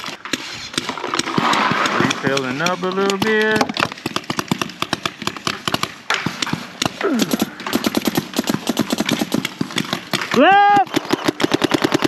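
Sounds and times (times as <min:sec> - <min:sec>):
paintball markers firing: 0:00.0 - 0:12.0
person shouting: 0:10.3 - 0:10.9.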